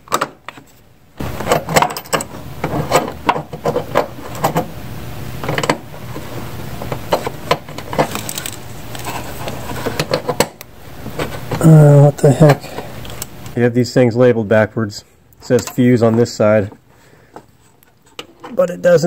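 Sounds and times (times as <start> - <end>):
steady low hum: 0.0 - 19.0
metallic clicks of cable and nuts: 1.4 - 4.6, 7.0 - 10.7.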